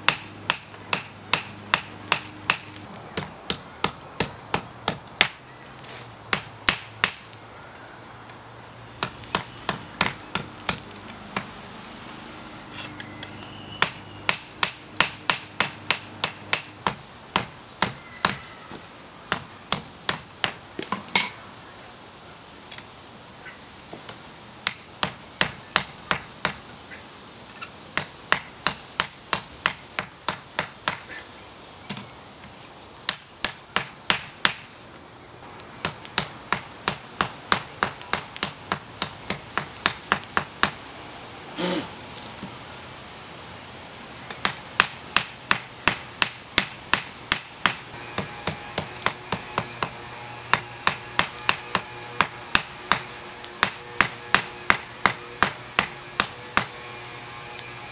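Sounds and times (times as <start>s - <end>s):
hammer ringing on steel anvil: 0.0s - 5.7s, 6.3s - 7.7s, 9.0s - 11.5s, 13.8s - 18.6s, 19.3s - 21.6s, 25.0s - 26.8s, 28.0s - 31.2s, 33.1s - 35.0s, 35.8s - 41.0s, 44.4s - 57.0s.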